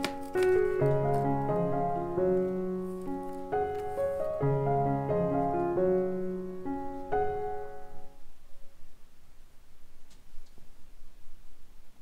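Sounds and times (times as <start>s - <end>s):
piano music: 0.0s - 8.3s.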